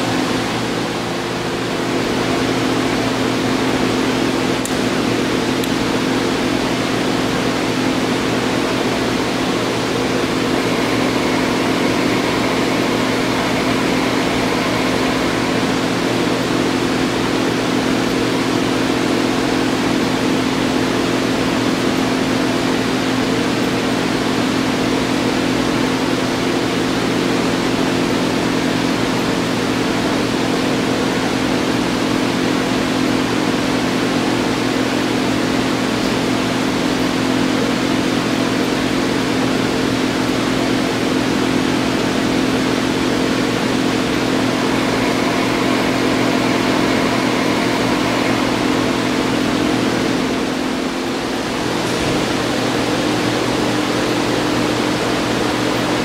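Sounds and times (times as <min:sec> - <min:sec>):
lathe humming: 0:00.0 - 0:23.0, 0:38.6 - 0:56.0.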